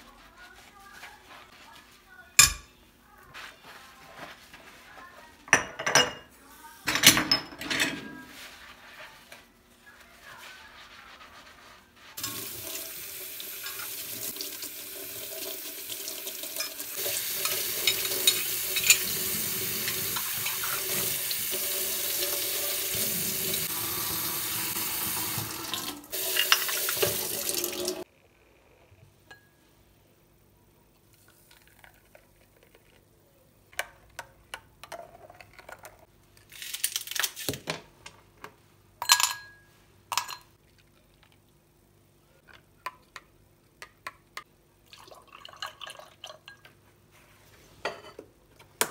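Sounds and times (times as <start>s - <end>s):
sponge scrubbing grates: 8.3s - 12.2s
tap water running into sink: 12.2s - 28.0s
spoon clinking glass: 17.4s - 19.1s.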